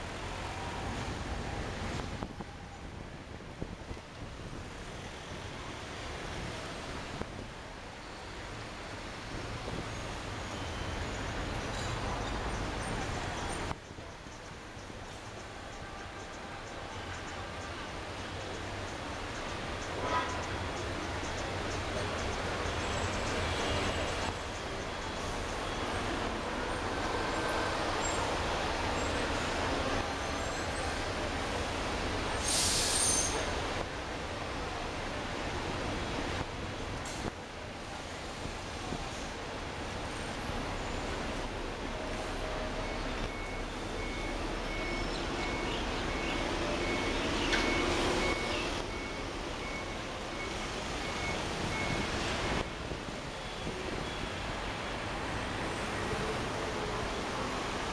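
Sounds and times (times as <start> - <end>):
road traffic rumble: 0.0 - 57.9
sharp hiss: 32.3 - 33.5.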